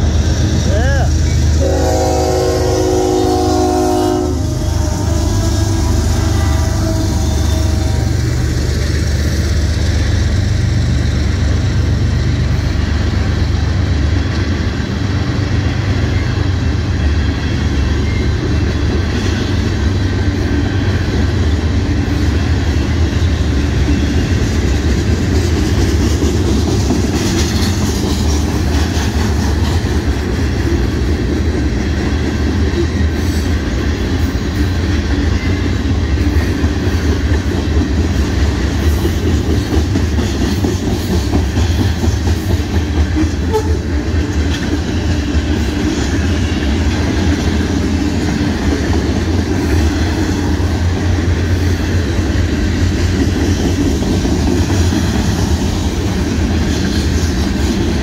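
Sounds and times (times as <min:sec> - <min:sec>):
freight train rumbling past: 0:00.0 - 0:58.0
train horn: 0:01.6 - 0:08.4, 0:43.2 - 0:44.1
wheels clattering on rail: 0:05.3 - 0:58.0.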